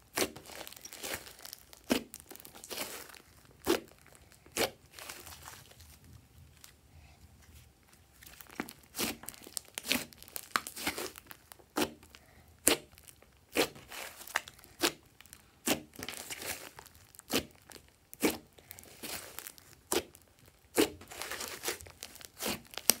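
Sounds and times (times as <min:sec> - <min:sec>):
slime popping and crackling: 0:00.0 - 0:06.1, 0:08.2 - 0:23.0.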